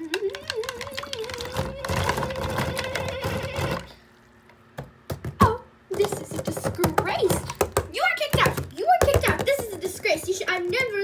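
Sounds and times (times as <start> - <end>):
person speaking: 5.4 - 11.0.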